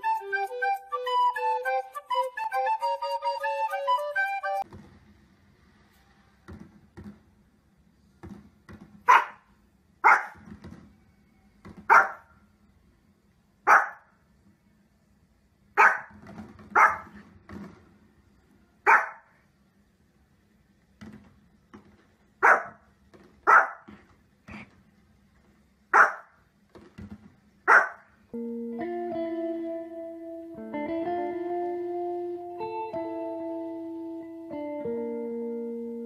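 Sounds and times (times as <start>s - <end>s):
small dog barking: 9.1s - 10.4s, 11.9s - 12.3s, 13.6s - 14.1s, 15.8s - 16.2s, 16.8s - 17.2s, 18.8s - 19.4s, 22.4s - 22.8s, 23.4s - 23.9s, 25.9s - 26.4s, 27.7s - 28.1s.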